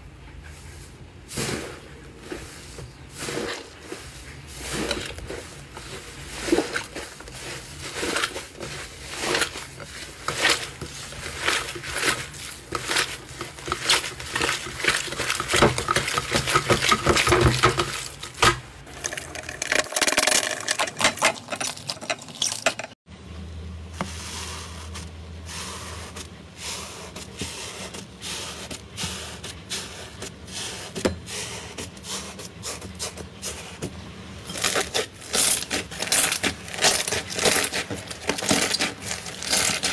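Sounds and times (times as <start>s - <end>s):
hands kneading crackling slime: 1.2s - 19.2s, 34.5s - 39.9s
potato masher squishing slime: 1.3s - 22.9s, 24.0s - 39.9s.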